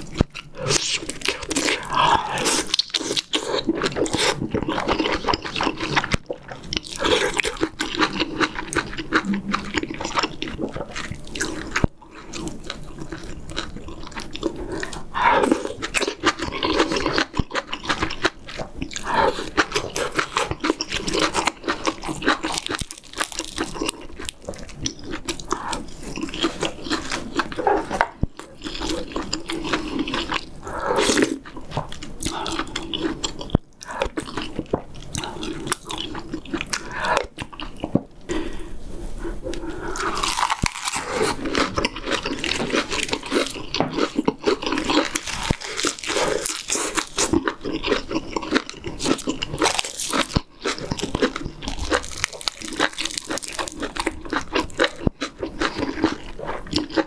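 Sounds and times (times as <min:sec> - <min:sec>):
chewing and wet crunching: 0:00.0 - 0:38.1, 0:39.5 - 0:57.0.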